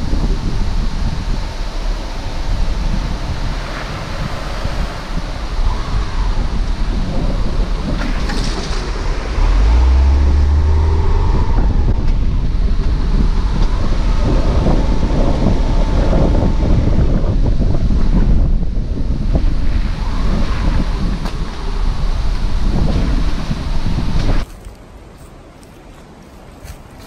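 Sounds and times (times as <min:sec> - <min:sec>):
tyres rumbling on dirt track: 0:00.0 - 0:24.5
wind on microphone: 0:00.0 - 0:27.0
deep low rumble: 0:05.1 - 0:24.5.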